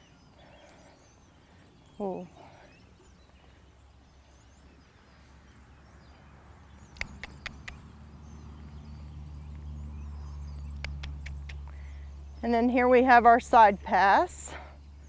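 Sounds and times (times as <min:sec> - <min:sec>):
sharp clicks: 0:07.0 - 0:07.8, 0:10.7 - 0:11.7.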